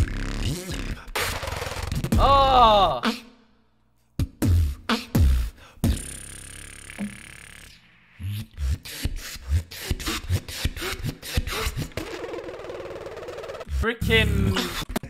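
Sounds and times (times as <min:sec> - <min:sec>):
beatboxing: 0:00.0 - 0:03.4, 0:04.2 - 0:07.4, 0:08.1 - 0:15.0.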